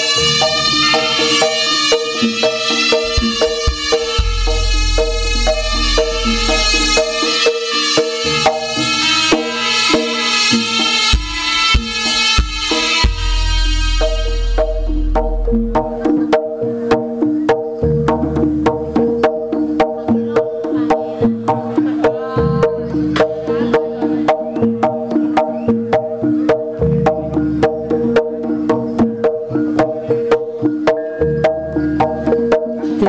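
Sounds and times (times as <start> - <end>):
rapid sharp drum strokes: 0.0 - 19.8
pitched metallic notes: 0.0 - 33.0
deep low gong note: 3.1 - 7.2, 13.0 - 16.0.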